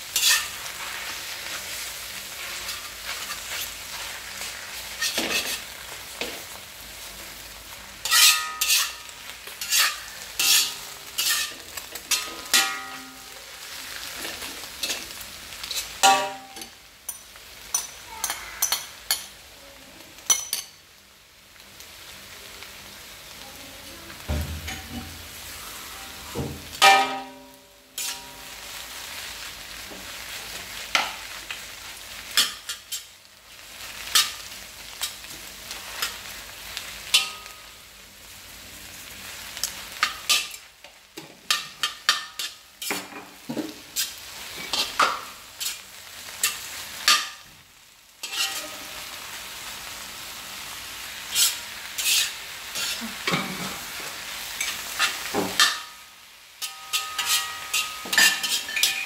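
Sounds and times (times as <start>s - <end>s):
food sizzling in a pan: 0.0s - 59.0s
utensil clicking and scraping pan: 0.2s - 0.6s, 8.0s - 12.8s, 48.2s - 48.8s, 51.3s - 53.8s, 56.6s - 59.0s.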